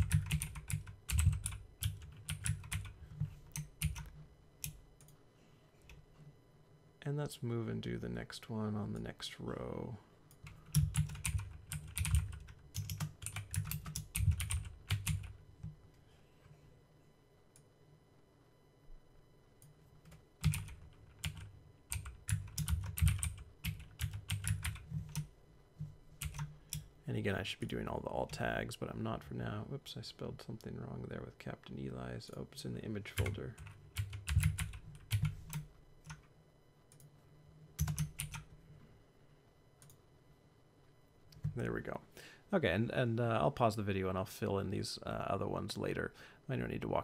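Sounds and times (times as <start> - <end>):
typing on computer keyboard: 0.0 - 5.2, 10.4 - 15.3, 20.1 - 25.3, 26.2 - 26.8, 33.2 - 36.2, 37.8 - 38.5.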